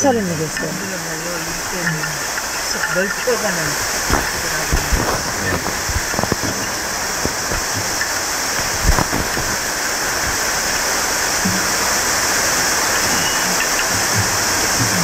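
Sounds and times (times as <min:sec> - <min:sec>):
steady rushing hiss: 0:00.0 - 0:15.0
sharp knock: 0:04.1 - 0:06.6.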